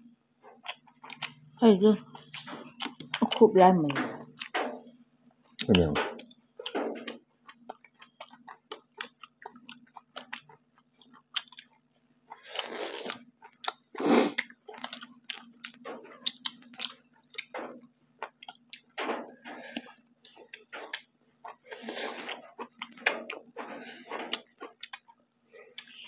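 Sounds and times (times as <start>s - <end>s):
wet chewing and lip smacks: 0.5s - 1.4s, 2.1s - 3.4s, 4.2s - 4.7s, 5.6s - 26.0s.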